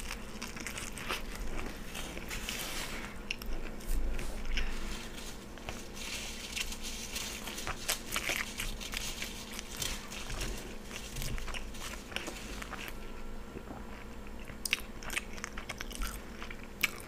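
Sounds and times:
paper napkin crinkling: 0:00.0 - 0:13.2.

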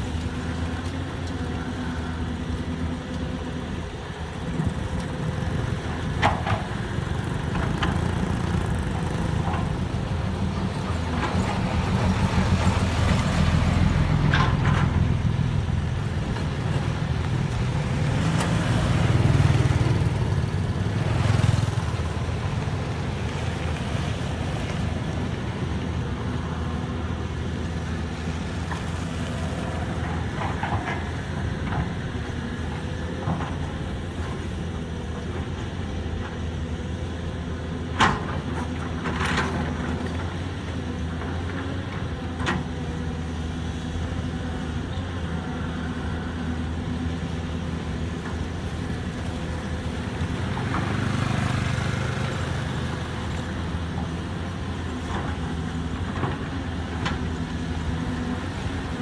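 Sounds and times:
excavator diesel engine running: 0:00.0 - 0:59.0
motorbike passing: 0:03.9 - 0:34.6, 0:44.8 - 0:59.0.

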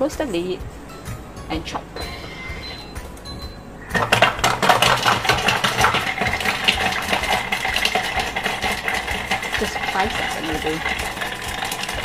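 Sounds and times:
food processor motor running: 0:04.0 - 0:12.0
garlic pieces rattling in bowl: 0:04.0 - 0:12.0.

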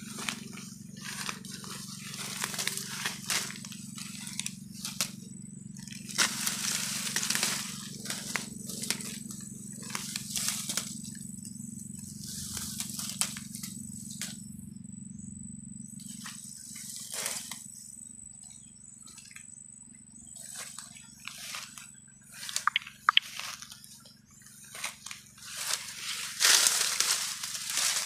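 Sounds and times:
rustling grass and dry leaves: 0:00.0 - 0:15.2, 0:15.8 - 0:28.0
low steady hum: 0:00.0 - 0:28.0
sharp snaps: 0:22.5 - 0:23.3.

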